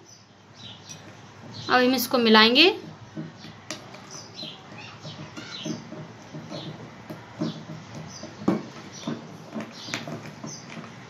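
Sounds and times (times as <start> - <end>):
spoon knocking against bowl: 2.8 - 10.9
spoon scraping glass bowl: 2.8 - 11.0.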